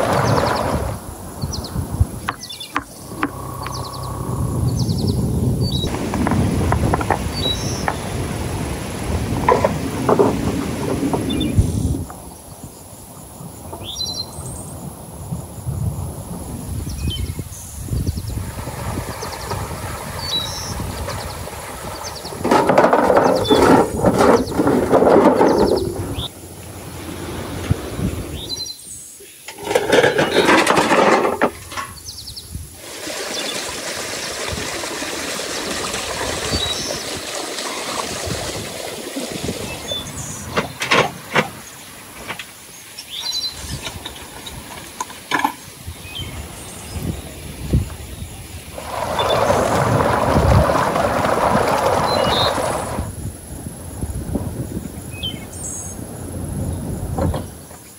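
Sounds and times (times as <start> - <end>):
rocks clattering into metal wheelbarrow: 0.0 - 1.0, 9.4 - 11.4, 21.7 - 26.3, 29.5 - 32.0, 39.4 - 42.6, 48.8 - 53.0
faint bird chirps: 2.4 - 5.9
metal wheelbarrow clanking: 22.3 - 26.3, 29.5 - 32.1, 40.0 - 42.6, 43.2 - 45.7.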